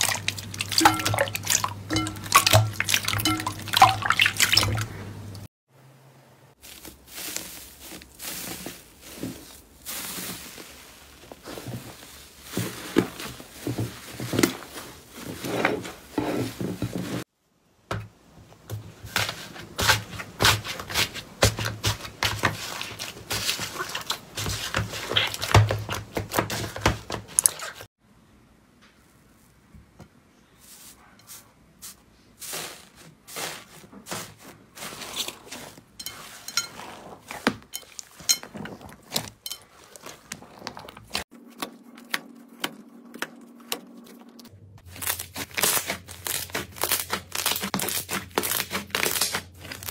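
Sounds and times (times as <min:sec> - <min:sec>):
foil-covered slime crinkling: 0:06.6 - 0:15.5, 0:32.4 - 0:36.0, 0:44.8 - 0:49.9.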